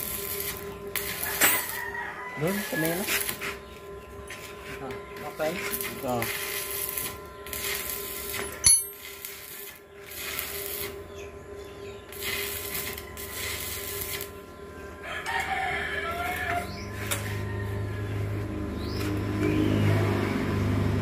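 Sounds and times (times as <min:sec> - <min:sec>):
rooster crowing: 0:01.1 - 0:03.3, 0:15.0 - 0:18.6.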